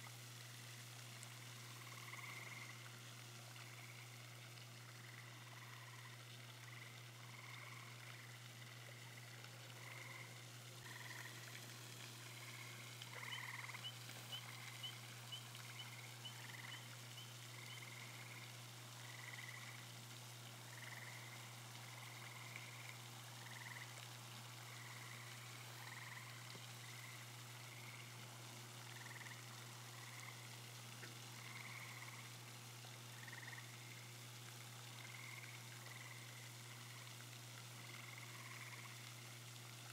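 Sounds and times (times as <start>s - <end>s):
frogs calling: 1.6s - 2.9s, 4.9s - 19.8s, 20.7s - 24.0s, 24.6s - 28.2s, 28.8s - 30.6s, 31.3s - 32.4s, 33.1s - 34.0s, 35.0s - 37.1s, 37.8s - 39.0s.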